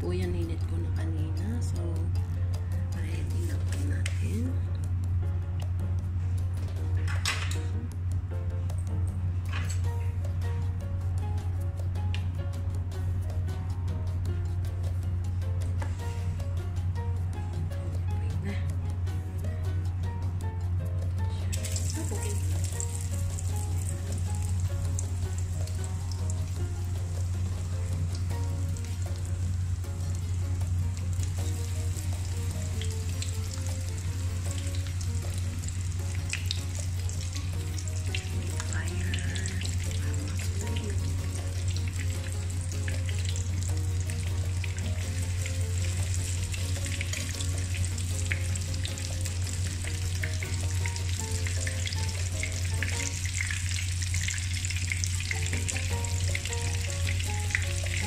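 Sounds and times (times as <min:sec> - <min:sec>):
steady low hum: 0:00.0 - 0:58.0
chicken sizzling in hot oil: 0:21.5 - 0:58.0.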